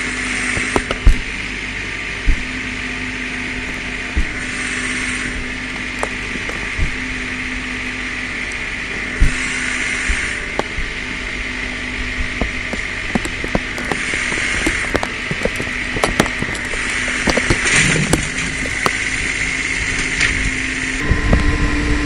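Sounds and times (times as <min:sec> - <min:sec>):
tractor engine under load: 0:00.0 - 0:22.0
sharp cracks and knocks: 0:00.5 - 0:01.4, 0:02.2 - 0:02.6, 0:03.6 - 0:04.6, 0:05.3 - 0:07.2, 0:10.1 - 0:11.0, 0:12.2 - 0:20.6.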